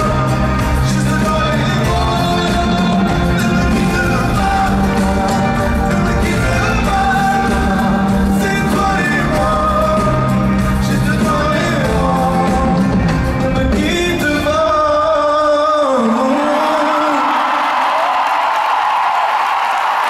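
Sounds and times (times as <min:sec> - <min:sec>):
live band drums and bass: 0:00.0 - 0:14.8
man singing pop ballad: 0:00.0 - 0:17.7.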